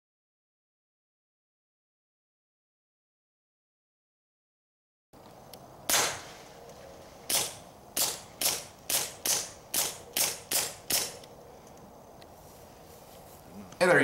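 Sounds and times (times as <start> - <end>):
suppressed pistol shots: 5.9 - 6.4, 7.3 - 11.2.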